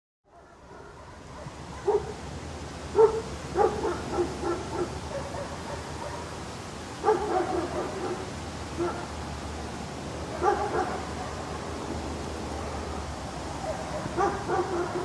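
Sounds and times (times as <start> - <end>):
dog barking: 0.3 - 2.2, 2.9 - 6.4, 7.0 - 9.1, 10.3 - 11.7, 13.6 - 15.0.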